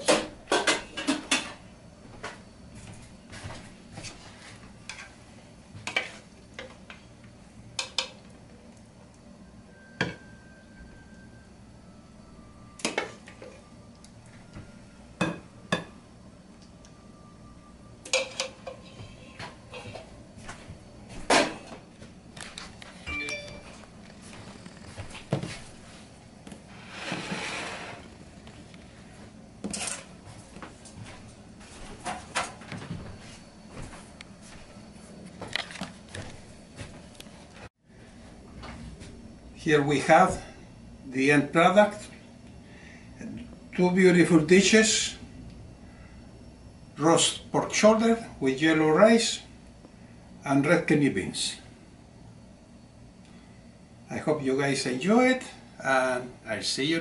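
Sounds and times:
plates sliding across wood: 26.7s - 28.1s.

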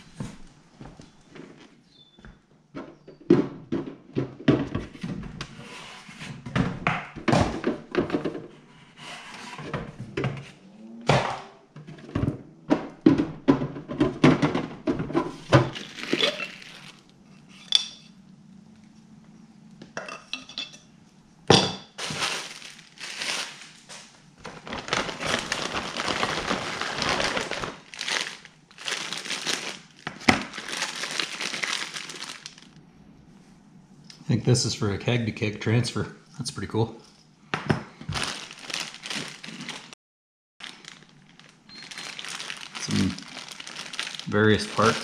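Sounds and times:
plastic bag crinkling: 15.7s - 17.1s, 22.0s - 32.8s, 38.1s - 40.0s, 40.6s - 45.0s.

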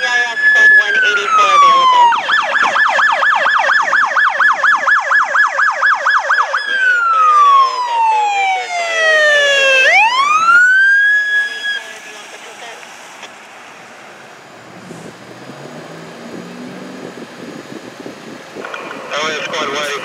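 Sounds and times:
electronic siren yelping and wailing: 0.0s - 11.9s.

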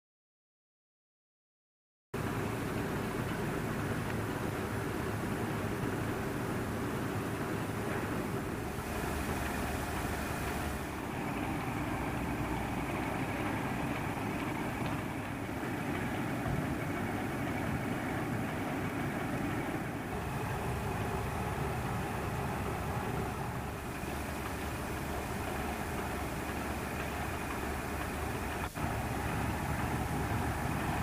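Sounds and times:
diesel locomotive engine running: 2.2s - 31.0s.

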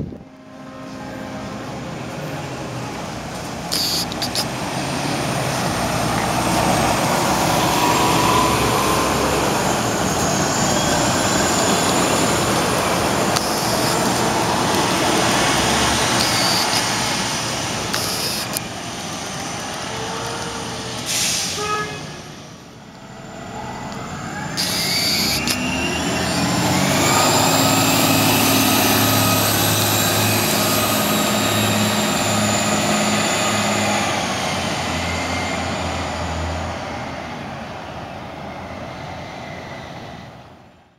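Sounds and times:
bus engine and transmission whine: 0.0s - 40.9s
buses running: 0.0s - 40.9s
air brake hisses: 21.0s - 22.4s.

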